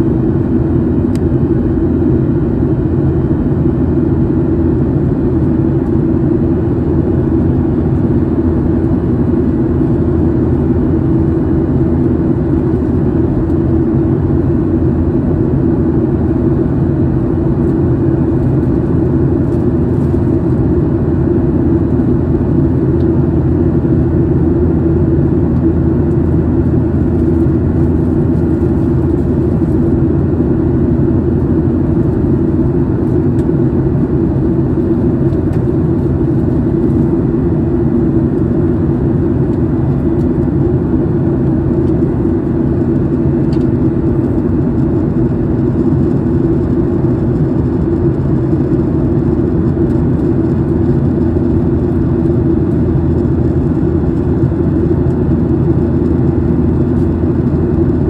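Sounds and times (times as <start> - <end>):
jet airliner engine drone: 0.0 - 58.0.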